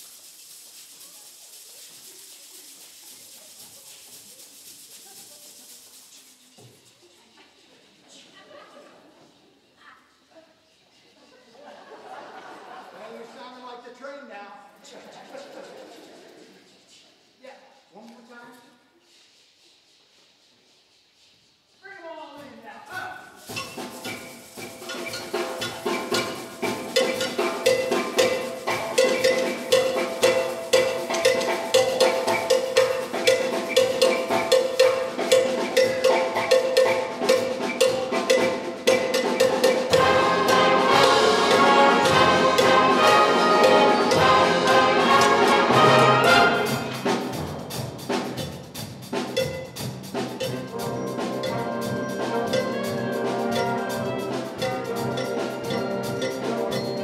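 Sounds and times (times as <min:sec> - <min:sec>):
steady drum rhythm: 0:21.9 - 0:57.0
concert band playing: 0:23.4 - 0:57.0.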